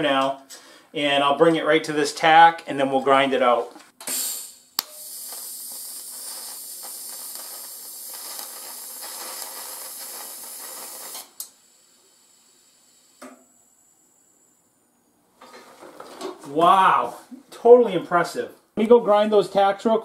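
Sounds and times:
welding arc hissing: 4.0 - 13.3.

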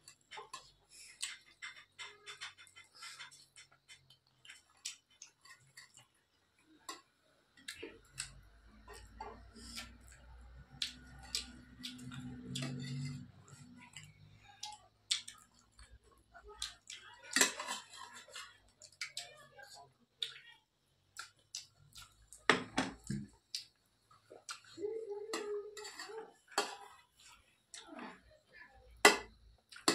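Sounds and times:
chewing smacks: 13.9 - 17.1, 21.2 - 22.4.

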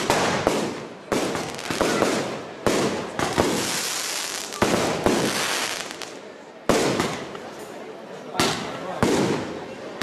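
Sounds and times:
fireworks bangs: 0.0 - 7.6, 8.4 - 10.0
fireworks crackling: 0.0 - 7.6.

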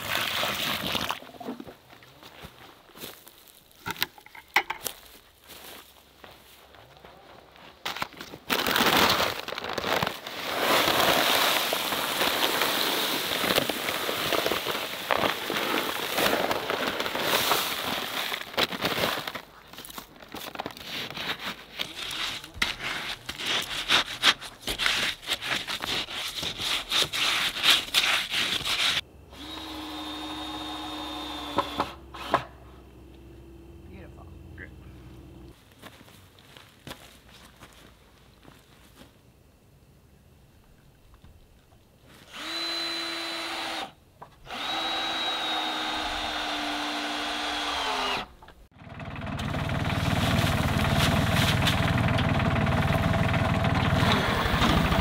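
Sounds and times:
paper bag crackling: 8.3 - 28.0
settling grit: 8.5 - 29.0
concrete mix pouring hiss: 10.3 - 18.4.

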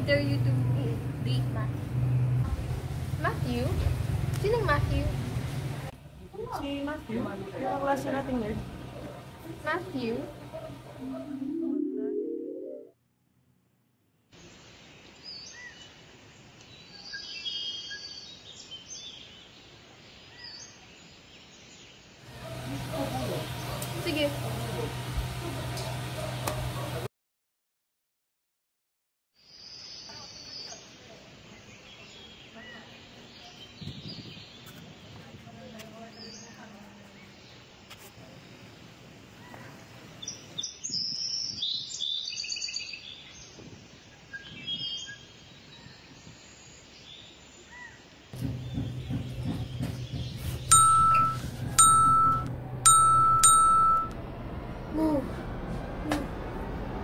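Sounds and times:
steady background hiss: 14.3 - 22.2
high thin tone: 50.7 - 54.2
phone notification pings: 50.7 - 54.2.

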